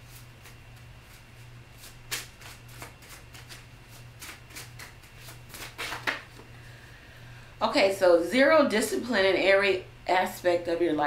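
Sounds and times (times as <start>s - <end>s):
cards being shuffled: 0.1s - 6.4s.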